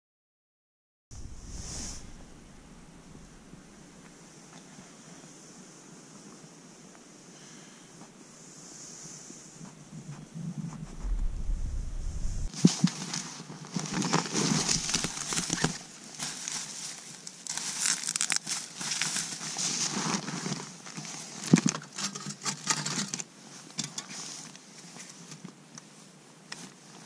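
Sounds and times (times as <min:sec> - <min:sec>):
plastic bags crinkling: 0:14.0 - 0:19.4.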